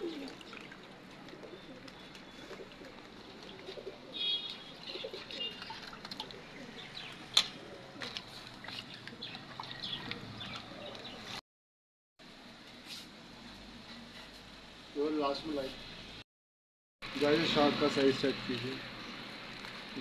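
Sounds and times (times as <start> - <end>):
birds chirping: 0.0 - 11.4.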